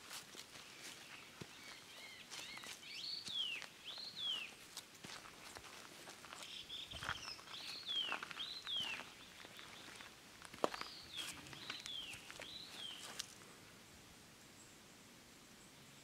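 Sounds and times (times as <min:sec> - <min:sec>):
bird calling: 0:00.8 - 0:04.6, 0:06.3 - 0:13.2.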